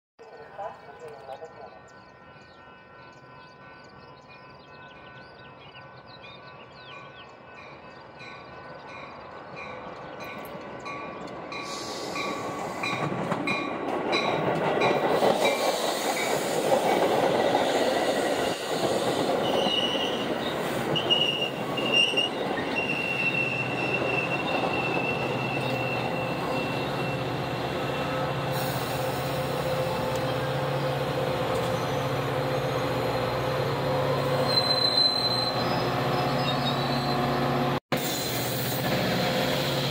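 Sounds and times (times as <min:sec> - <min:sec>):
diesel locomotive hum: 0:00.2 - 0:39.9
train cars rumbling past: 0:00.2 - 0:39.9
wheel squeal: 0:34.4 - 0:37.2.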